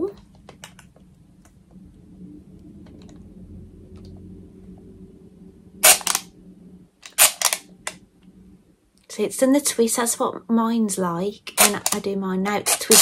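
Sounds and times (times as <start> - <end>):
loud sharp clicks: 7.0 - 7.6, 11.6 - 12.0.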